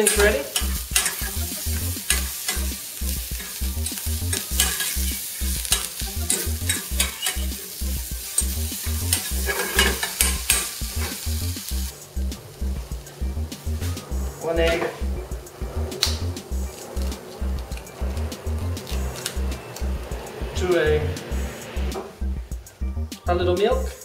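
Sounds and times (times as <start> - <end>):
metal fork scraping a pan: 0.0 - 2.7, 3.4 - 7.6, 8.2 - 11.2
vegetables sizzling in a frying pan: 0.0 - 15.4.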